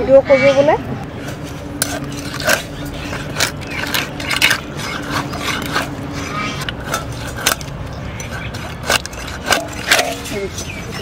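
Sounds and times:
fish scraping against blade: 1.2 - 11.0.

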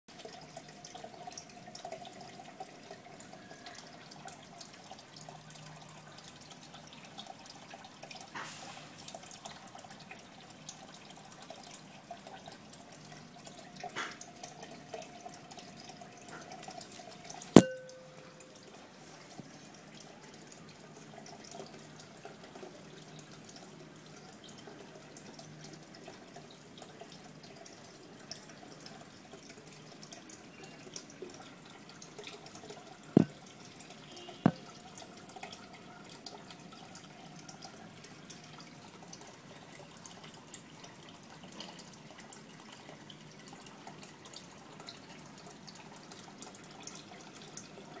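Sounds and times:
aquarium water trickling: 0.1 - 48.0
sharp knocks: 17.6 - 18.2.

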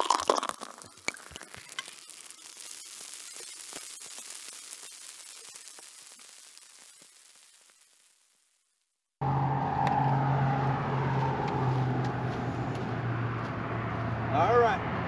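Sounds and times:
crackling static hiss: 0.0 - 9.2.

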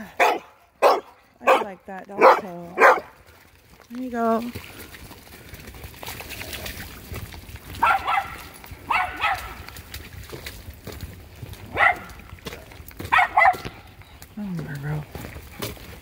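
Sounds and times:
dog barking: 0.1 - 3.1, 7.8 - 9.6, 11.7 - 12.1, 13.1 - 13.8.

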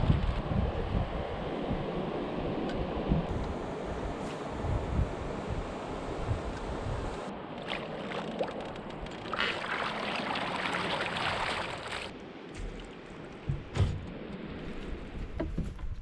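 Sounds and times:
rushing hiss of water and wind: 0.0 - 15.4
paddle strokes in water: 7.4 - 15.7.

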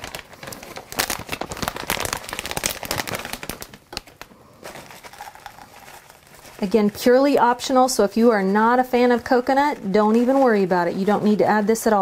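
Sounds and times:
plastic bag crinkling: 0.0 - 12.0
coconut pouring into cup: 4.6 - 6.7.

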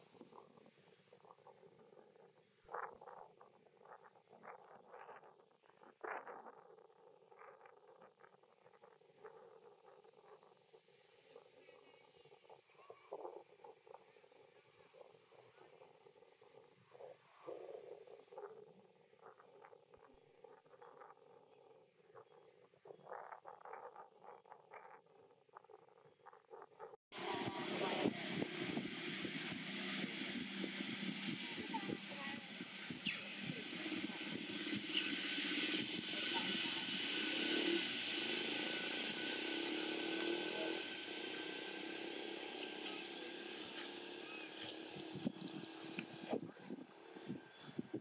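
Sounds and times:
vehicle engine running: 26.8 - 48.0
steady high hiss: 27.2 - 48.0.

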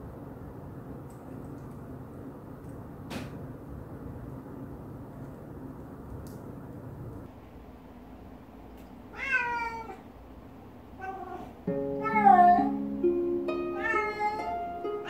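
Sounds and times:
cat meowing: 9.1 - 10.1, 11.0 - 12.8, 13.7 - 14.7
plucked ukulele tune: 11.6 - 15.0.

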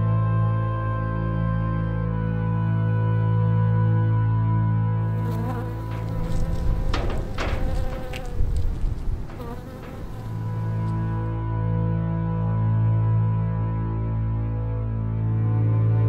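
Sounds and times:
ambient music drone: 0.0 - 8.2, 9.8 - 16.0
buzzing fly: 5.0 - 11.4
sharp crackling clicks: 5.6 - 11.3.

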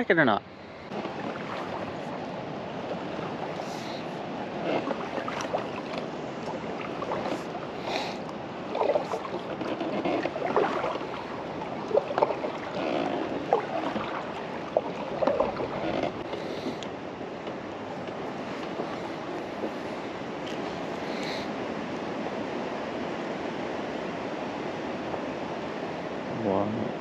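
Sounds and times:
wind and water hiss: 0.0 - 27.0
paddle splashes and drips: 0.9 - 21.5.

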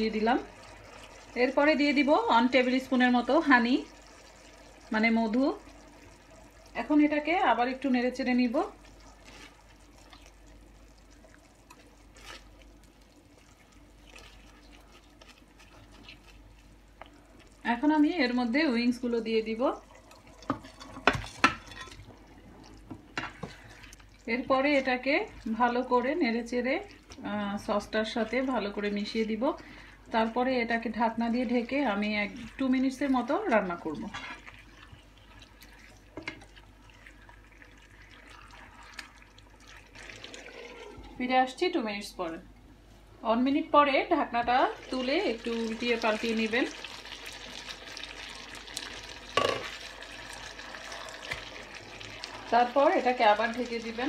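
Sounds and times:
spatula stirring simmering sauce: 8.3 - 18.1, 30.1 - 41.0, 44.8 - 54.0
wet squelching of sauce: 8.7 - 17.7
spatula scraping a pan: 34.0 - 34.6.

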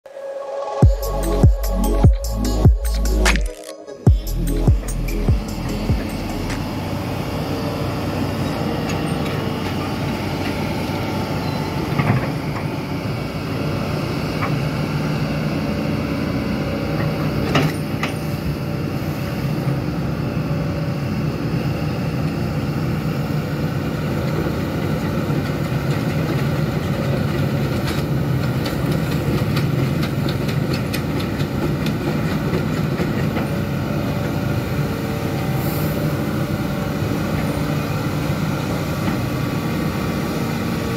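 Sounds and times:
excavator diesel engine running: 0.8 - 40.9.

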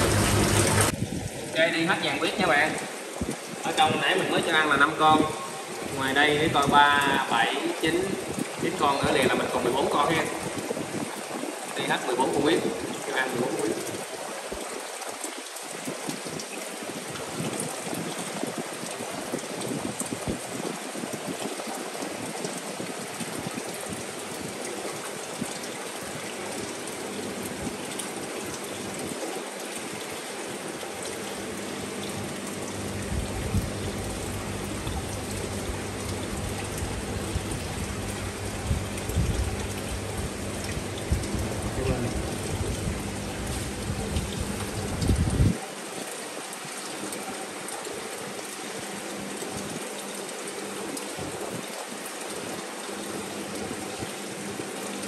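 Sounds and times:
running water hiss: 0.0 - 55.0
low steady hum: 30.8 - 45.6.

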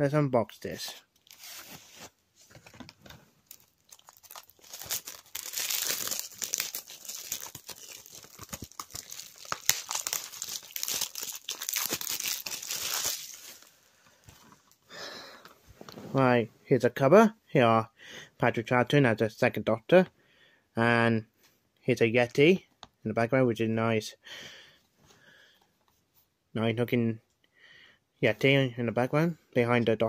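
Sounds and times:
plastic wrapping tearing and crackling: 3.4 - 13.7.

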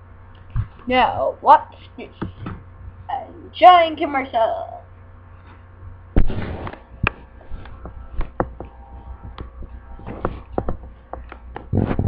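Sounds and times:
microphone handling rustle: 5.4 - 12.0
sharp knocks and taps: 7.8 - 8.7, 10.1 - 11.7.

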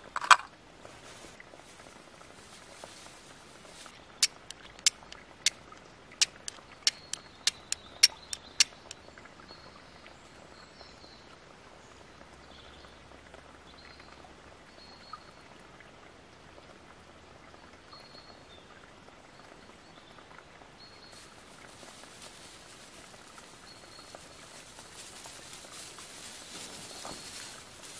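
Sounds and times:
flint and steel striking: 6.2 - 9.0.

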